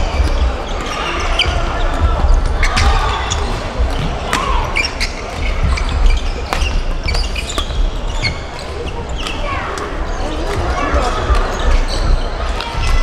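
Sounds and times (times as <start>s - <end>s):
court shoes squeaking: 0.0s - 13.0s
footfalls on hall floor: 0.0s - 13.0s
rackets hitting shuttlecock: 6.4s - 7.8s.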